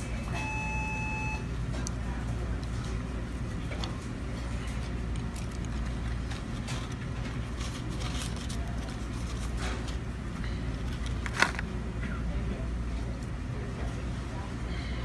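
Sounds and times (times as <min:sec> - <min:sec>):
paper carton crackling: 0:04.8 - 0:10.0.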